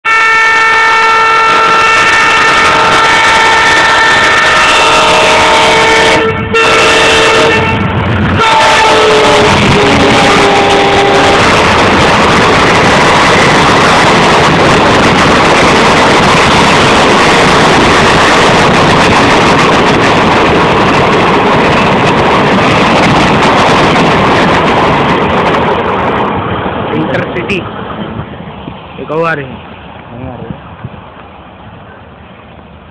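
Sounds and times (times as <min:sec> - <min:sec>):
locomotive horn: 0:00.0 - 0:11.6
train passing at speed: 0:00.0 - 0:32.9.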